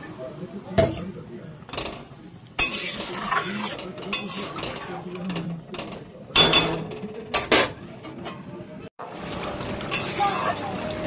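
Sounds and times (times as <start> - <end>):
metal spatula scraping pot: 1.7 - 6.6, 9.7 - 10.7.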